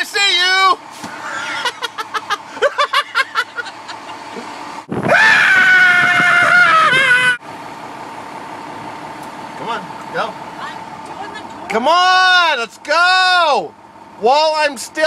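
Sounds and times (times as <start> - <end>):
man yelling: 0.0 - 0.8, 11.7 - 15.0.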